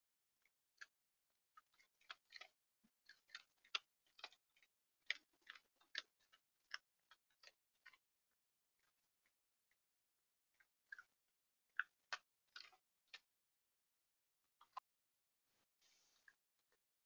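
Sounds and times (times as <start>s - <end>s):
animal crunching dry food: 1.6s - 6.8s.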